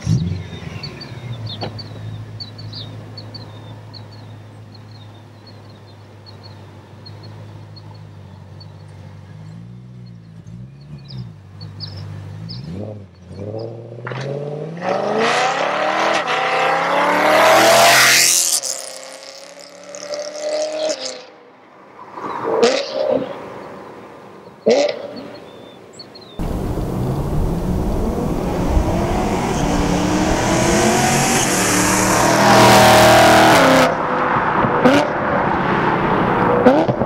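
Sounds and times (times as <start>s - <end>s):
birds chirping: 0.0s - 13.7s, 24.4s - 33.5s
car engine idling and accelerating: 0.0s - 14.8s, 26.4s - 37.0s.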